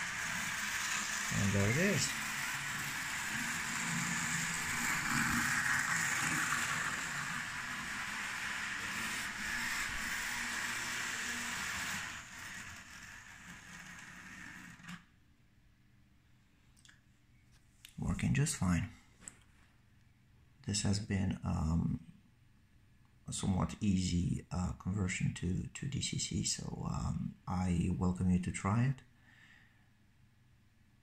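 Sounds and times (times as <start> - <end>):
model locomotive running on track: 0.0 - 15.0.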